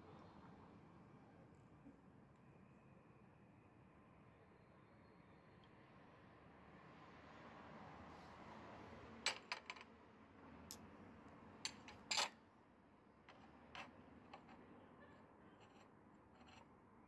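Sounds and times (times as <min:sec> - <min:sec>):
hard objects clicking and knocking: 0:09.3 - 0:09.8.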